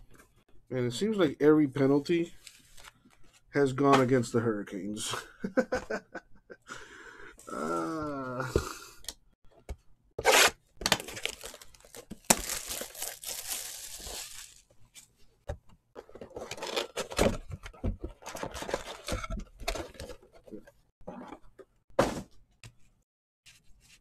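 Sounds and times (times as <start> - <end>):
card pack wrappers tearing and crinkling: 10.2 - 14.7, 16.3 - 17.1.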